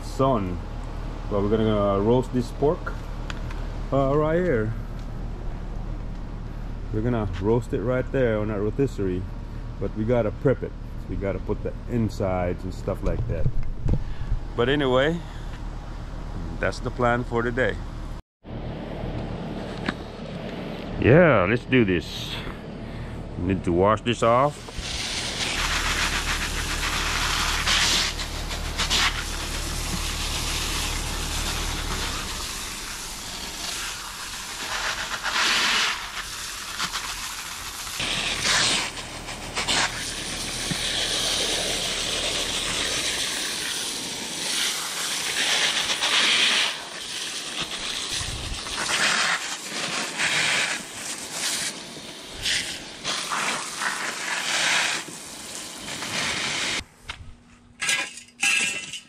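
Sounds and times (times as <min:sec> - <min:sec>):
hose nozzle spraying water: 0:24.6 - 0:56.8.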